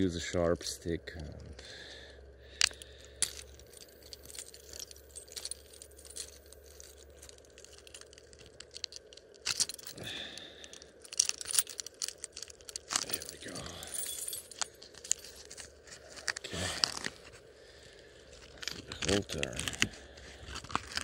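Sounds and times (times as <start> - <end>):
bark cracking and tearing: 18.5 - 21.0.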